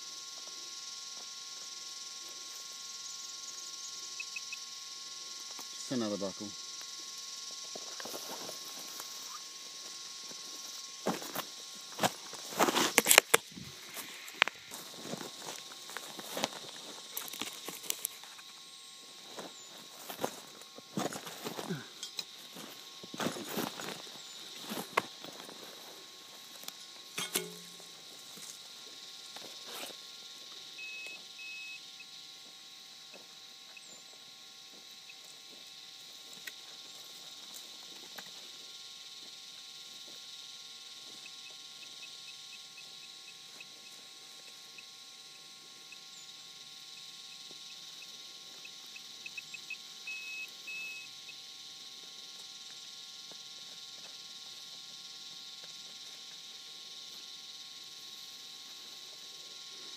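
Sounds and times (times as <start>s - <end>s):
metal detector beeping: 1.6s - 25.6s, 27.1s - 28.1s, 30.8s - 32.1s, 48.6s - 51.4s
scraping and rustling in soil: 7.6s - 28.6s
pick striking the ground: 27.2s - 27.8s.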